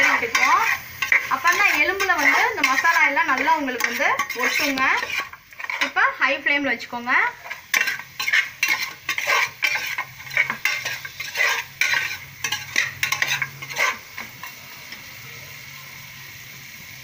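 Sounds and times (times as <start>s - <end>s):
metal ladle scraping pot: 0.0s - 6.0s, 7.4s - 14.5s
frying sizzle: 0.0s - 17.0s.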